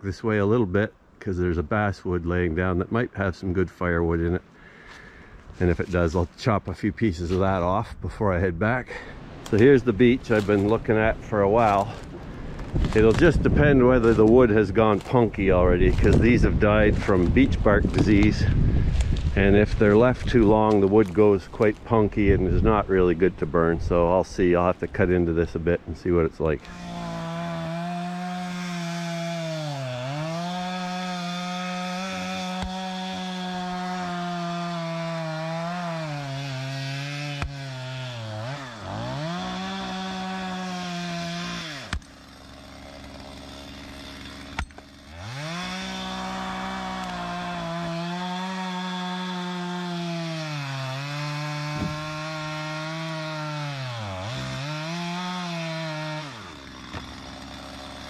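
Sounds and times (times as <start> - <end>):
chainsaw cutting log: 9.0 - 22.8, 26.5 - 58.0
sharp knocks of wood: 51.6 - 52.3.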